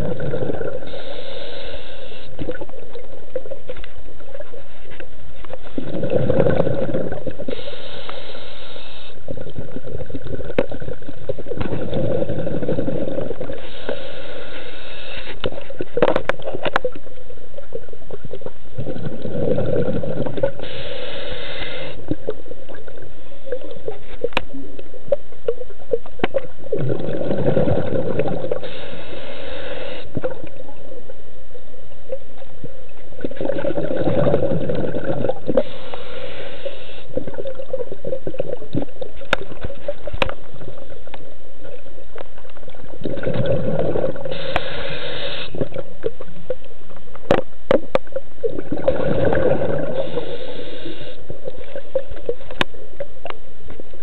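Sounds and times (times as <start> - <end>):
exhaled bubbles burbling: 0.0 - 1.1, 5.4 - 7.6, 9.2 - 13.9, 15.4 - 20.8, 21.9 - 28.8, 30.1 - 31.2, 32.0 - 35.8, 36.8 - 53.4
regulator inhale hiss: 0.1 - 2.6, 7.3 - 9.5, 11.6 - 15.7, 19.7 - 22.3, 28.4 - 30.4, 35.0 - 37.4, 43.9 - 45.8, 49.1 - 51.8.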